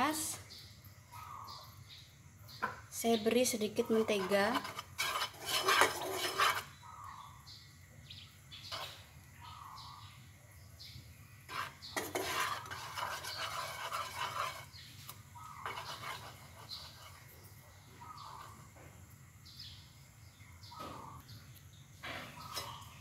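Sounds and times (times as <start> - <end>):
spatula scraping frying pan: 3.7 - 6.9, 8.6 - 9.2, 11.5 - 17.5, 18.1 - 18.7, 22.3 - 23.0.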